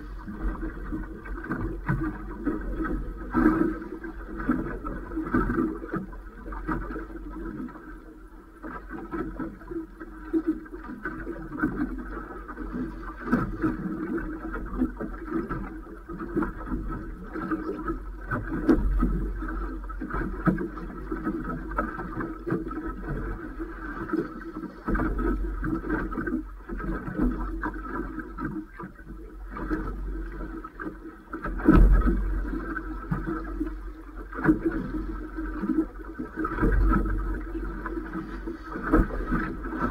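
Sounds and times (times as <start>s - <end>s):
waves slapping against boat hull: 0.0s - 39.9s
wind rumble on microphone: 0.0s - 39.9s
knocks on boat: 18.4s - 19.2s, 31.4s - 32.4s.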